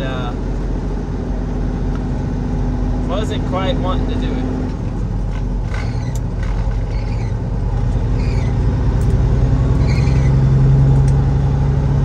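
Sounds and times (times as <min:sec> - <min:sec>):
diesel engine hum in cab: 0:00.0 - 0:12.0
faint short squeaks: 0:05.7 - 0:07.4, 0:08.1 - 0:08.6, 0:09.8 - 0:10.4.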